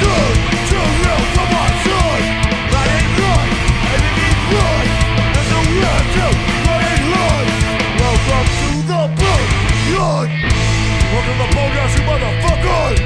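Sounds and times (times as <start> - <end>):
punk band playing live: 0.0 - 13.0.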